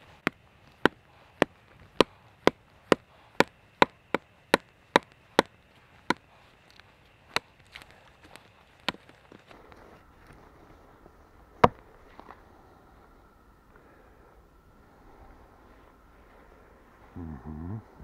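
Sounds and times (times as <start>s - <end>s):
axe chopping wood: 0.2s - 6.3s, 7.3s - 9.2s, 11.6s - 11.8s.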